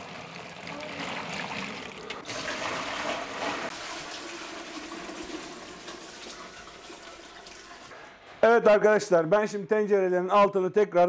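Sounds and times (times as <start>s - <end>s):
liquid pouring into a pot: 0.0s - 7.9s.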